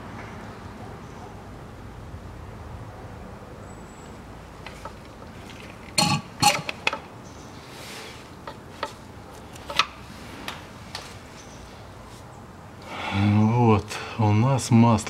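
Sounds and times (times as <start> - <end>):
sharp clicks of tube: 4.7 - 7.1.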